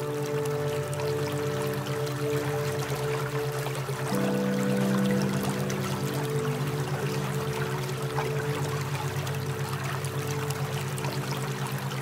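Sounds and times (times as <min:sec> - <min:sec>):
ambient music with low tones: 0:00.0 - 0:12.0
pulsing low hum: 0:00.0 - 0:12.0
trickling water: 0:00.0 - 0:12.0.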